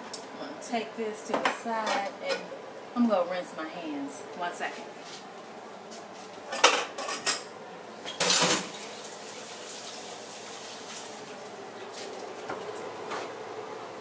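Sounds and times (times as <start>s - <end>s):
cookware clatter: 6.5s - 7.5s.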